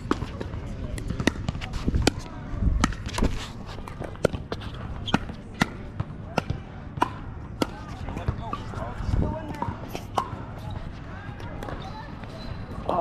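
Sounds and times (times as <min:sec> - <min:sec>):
ball bouncing on hard court: 0:00.0 - 0:02.2
paddles hitting pickleball: 0:00.0 - 0:08.7.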